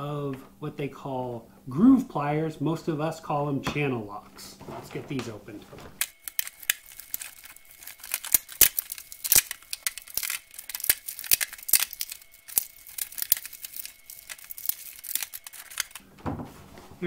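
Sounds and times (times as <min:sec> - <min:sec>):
plastic packaging crackling: 0:04.5 - 0:17.0.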